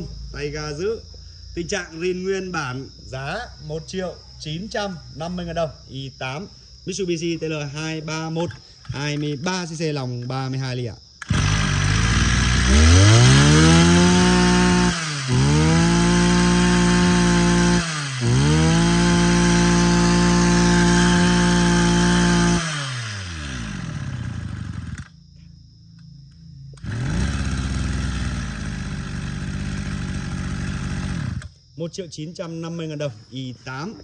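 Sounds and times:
brush cutter engine revving: 11.2 - 25.2, 26.7 - 31.6.

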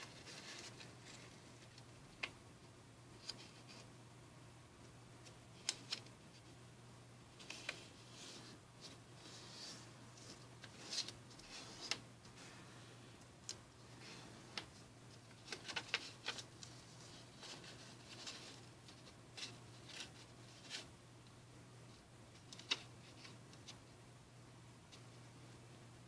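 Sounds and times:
paper rustling and crinkling: 0.0 - 1.8, 7.4 - 12.6, 14.0 - 20.9
faint low hum: 0.0 - 26.0.

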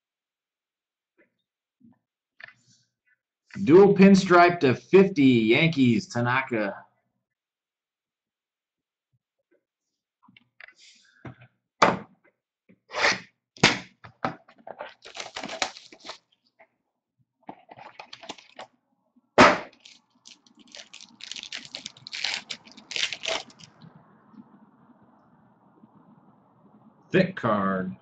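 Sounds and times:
foil wrapper crinkling: 14.8 - 16.2, 17.7 - 18.6, 19.7 - 23.8.

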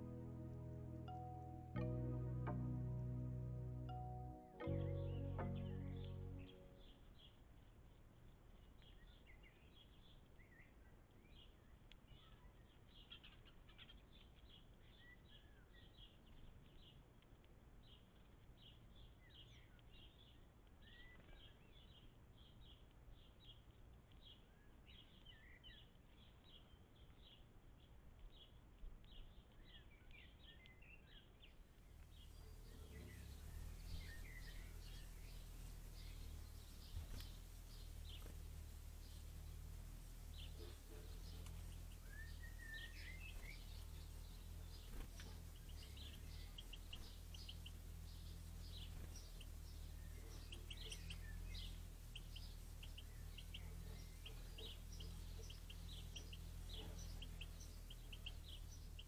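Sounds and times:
low steady rumble: 0.0 - 7.2, 31.8 - 59.0
small bird chirping: 3.7 - 59.0.

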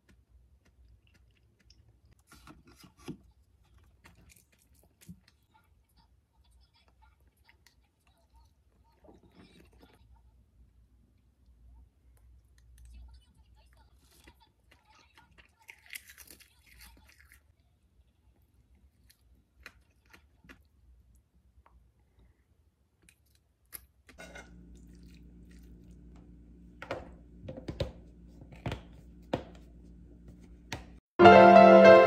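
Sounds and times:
chewing: 0.0 - 6.1, 6.7 - 10.2, 12.2 - 20.8, 23.0 - 26.2.

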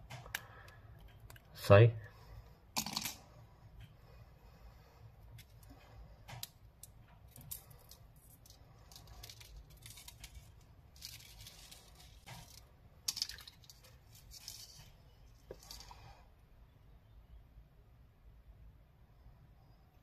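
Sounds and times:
hands knotting fishing line: 4.8 - 16.2.

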